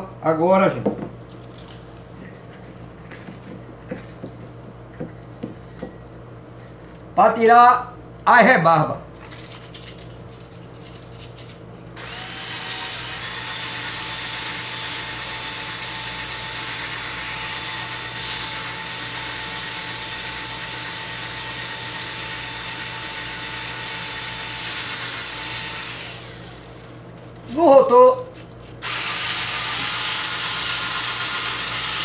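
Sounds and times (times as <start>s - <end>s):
drill motor whine: 12.0s - 27.0s, 28.8s - 32.0s.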